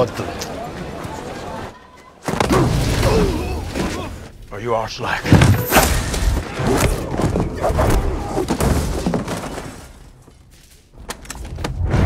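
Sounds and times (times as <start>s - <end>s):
fight crashes and thuds: 5.3s - 10.0s.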